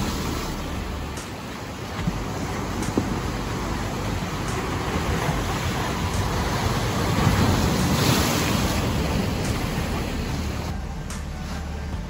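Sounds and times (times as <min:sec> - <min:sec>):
ocean surf washing on beach: 0:00.0 - 0:11.9.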